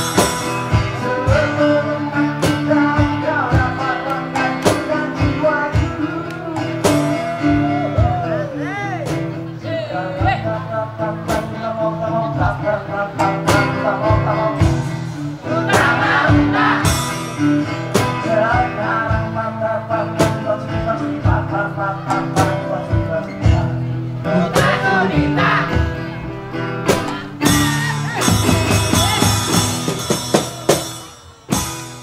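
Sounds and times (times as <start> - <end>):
strummed acoustic guitar: 0.0 - 32.0
bass drum and cymbal hits: 27.4 - 32.0.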